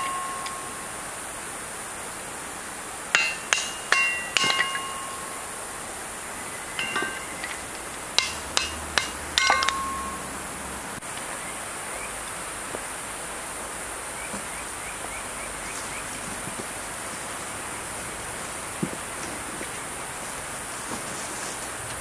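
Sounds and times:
steady hiss: 0.0s - 22.0s
kindling sticks knocking together: 3.2s - 5.4s, 6.8s - 10.2s.

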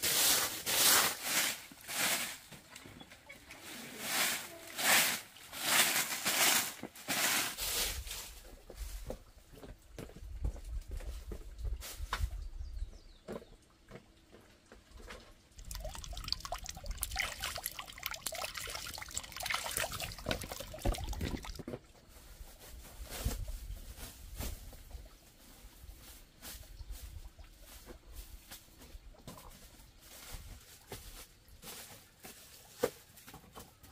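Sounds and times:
plastic sack crinkling: 15.6s - 21.6s
sack thumps being shaken: 15.6s - 21.7s.

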